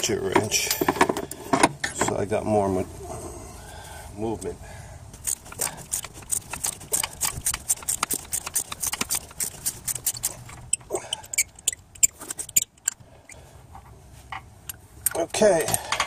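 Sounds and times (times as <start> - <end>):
ratchet wrench clicking: 5.2 - 13.4, 14.7 - 15.8.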